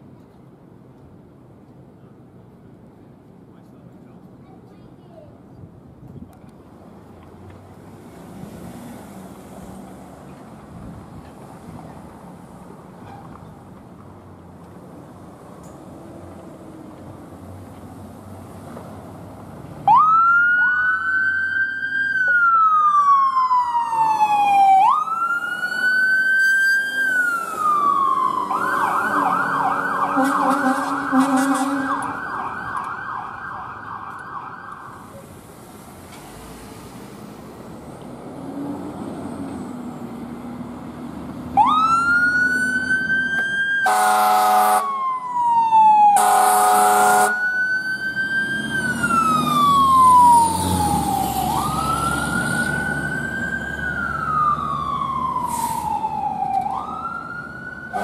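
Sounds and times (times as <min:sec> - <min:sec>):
emergency vehicle sirens wailing: 0:19.6 - 0:35.5, 0:36.9 - 0:58.0
fire engine air horn blasts: 0:28.8 - 0:32.3, 0:43.8 - 0:45.0, 0:46.1 - 0:47.5.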